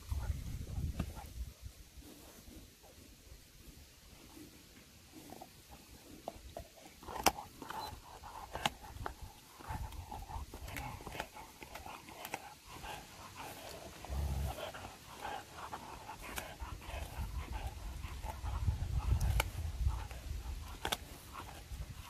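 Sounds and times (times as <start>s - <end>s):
dog panting: 5.1s - 22.0s
teeth cracking on bone: 6.2s - 21.7s.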